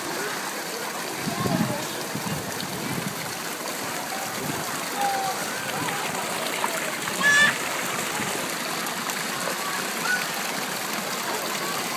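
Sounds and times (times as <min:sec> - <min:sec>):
water jets spraying onto deck: 0:00.0 - 0:11.9
high-pitched voice cry: 0:07.2 - 0:07.6.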